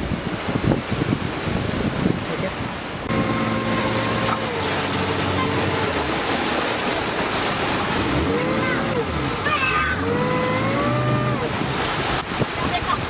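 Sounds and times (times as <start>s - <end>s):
rushing waves: 0.0s - 13.0s
wind buffeting microphone: 0.0s - 13.0s
boat engine drone: 2.9s - 13.0s.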